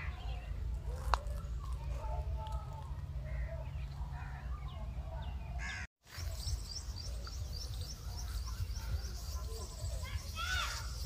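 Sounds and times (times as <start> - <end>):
birds calling: 0.0 - 11.0
wind rumble on microphone: 6.3 - 11.0.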